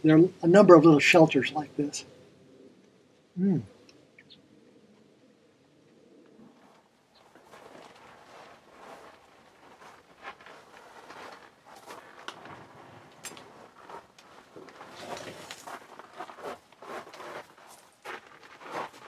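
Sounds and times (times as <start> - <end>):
clothing rustle: 6.5 - 19.0.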